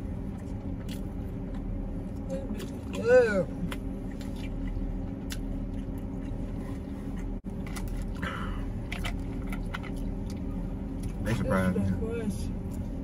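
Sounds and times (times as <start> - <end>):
vehicle cabin hum: 0.0 - 13.0
people chewing: 3.6 - 11.3.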